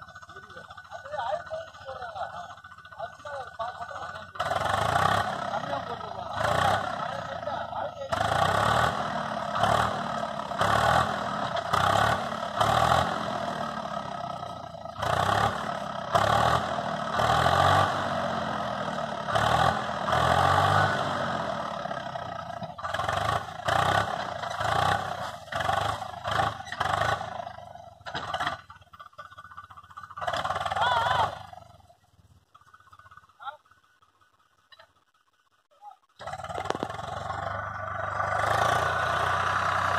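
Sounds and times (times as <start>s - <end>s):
tractor engine under load: 0.0s - 39.9s
people talking: 0.2s - 4.5s, 5.3s - 8.3s, 30.8s - 31.4s, 33.4s - 33.6s.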